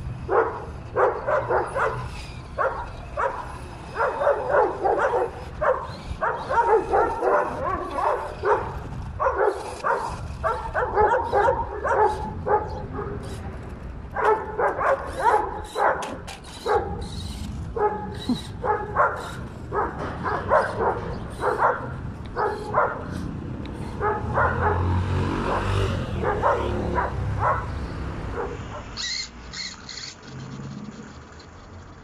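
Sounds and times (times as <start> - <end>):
dog barking: 0.3 - 13.3, 14.2 - 17.1, 17.8 - 23.2, 24.0 - 29.0.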